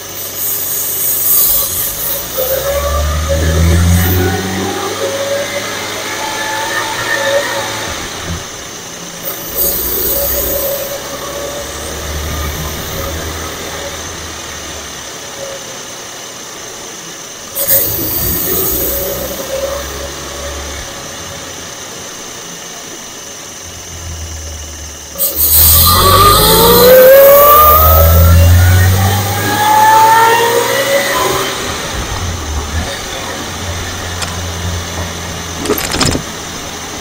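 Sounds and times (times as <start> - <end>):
supercharger whine: 0.0 - 37.0
low engine rumble: 31.2 - 37.0.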